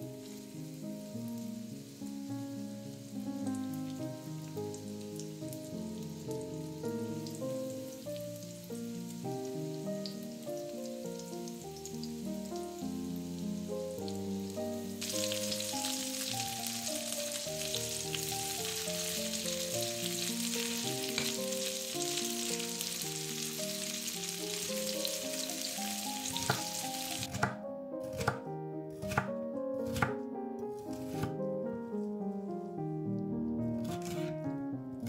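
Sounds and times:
chicken sizzling in hot oil: 0:00.0 - 0:27.4
knife chopping on cutting board: 0:26.4 - 0:28.4, 0:29.0 - 0:30.2, 0:30.9 - 0:31.4, 0:33.9 - 0:34.4.

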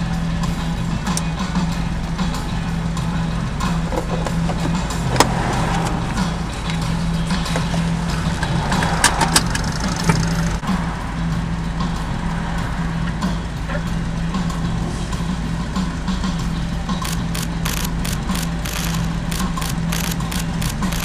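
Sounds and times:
motorcycle engine idling: 0:00.0 - 0:21.0
street traffic idling: 0:00.0 - 0:21.0
sharp clicks: 0:17.0 - 0:21.0.

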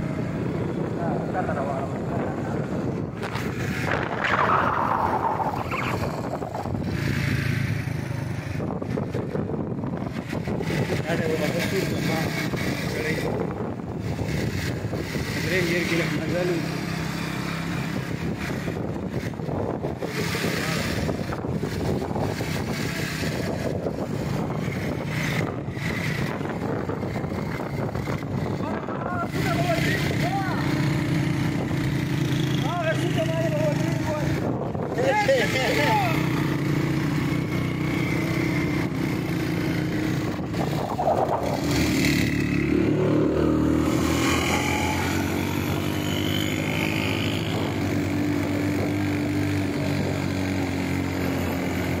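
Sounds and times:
motorcycle engine running: 0:00.0 - 0:52.0
wind buffeting microphone: 0:00.1 - 0:16.2, 0:17.6 - 0:32.5, 0:33.2 - 0:35.4, 0:36.0 - 0:51.0
falling whine: 0:03.9 - 0:06.8.

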